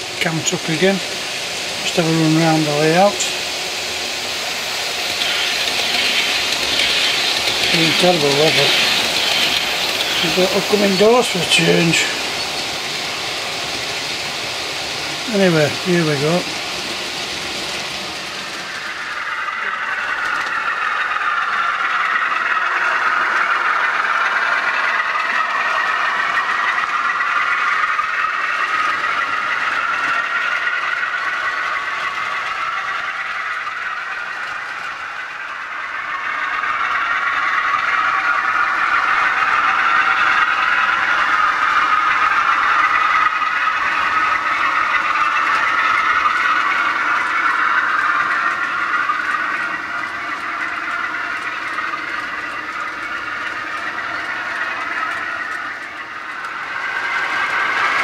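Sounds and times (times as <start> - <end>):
diesel engine sound through small speaker: 0.0 - 4.0, 5.0 - 16.7
wheels rattling on track: 0.0 - 58.0.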